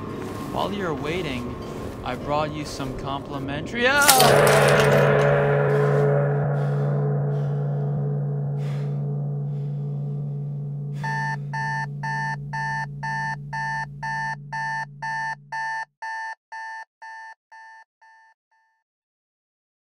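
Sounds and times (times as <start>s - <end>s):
low steady hum: 0.0s - 15.6s
alarm clock beeping: 11.0s - 18.7s.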